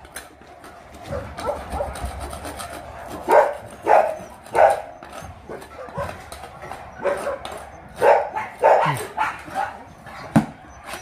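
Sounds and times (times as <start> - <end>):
dog barking: 1.1 - 2.0, 3.2 - 4.9, 7.0 - 11.0.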